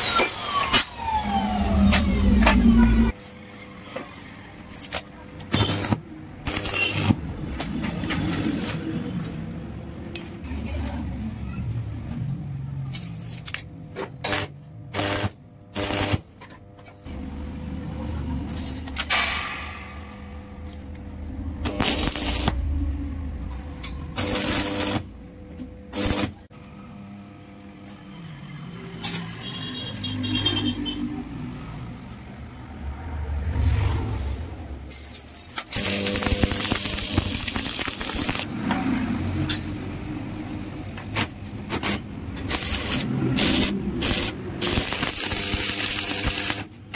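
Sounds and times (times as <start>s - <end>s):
metal knocks and clanks: 19.0s - 21.2s.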